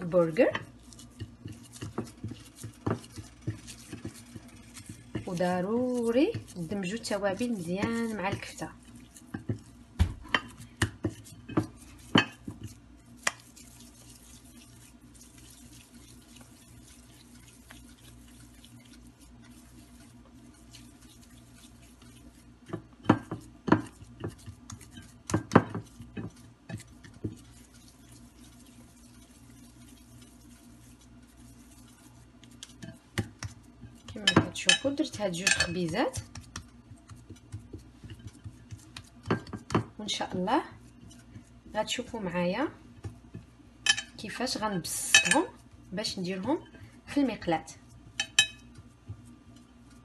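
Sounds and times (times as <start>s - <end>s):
taps and knocks against glass bowl: 48.2s - 48.8s.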